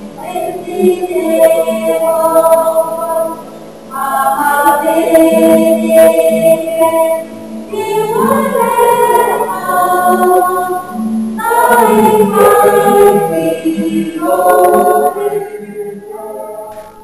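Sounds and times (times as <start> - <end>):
choir singing held chords: 0.0 - 17.0.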